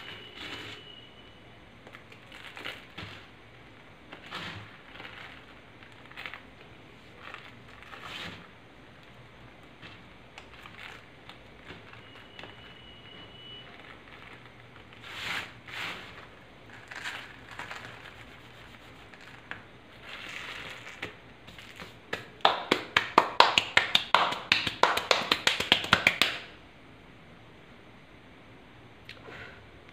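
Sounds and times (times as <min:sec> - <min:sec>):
fingertips patting chalk powder: 0:17.6 - 0:19.6.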